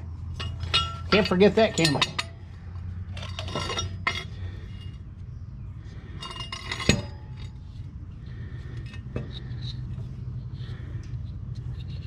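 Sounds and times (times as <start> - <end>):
metal hardware clinking: 0.3 - 2.4, 3.1 - 5.0, 6.2 - 7.7.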